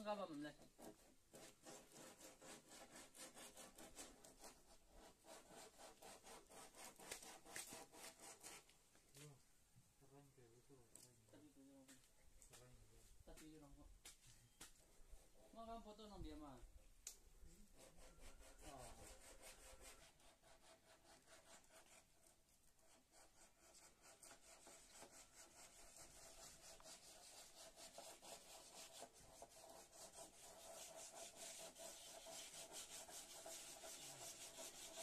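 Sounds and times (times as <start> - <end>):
hand sanding wood: 0.3 - 8.7, 17.8 - 35.0.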